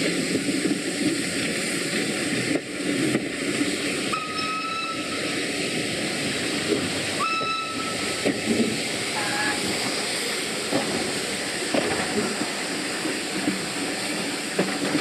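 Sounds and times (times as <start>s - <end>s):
steady steam hiss: 0.0s - 15.0s
steam locomotive whistle: 4.1s - 5.2s, 7.2s - 8.1s.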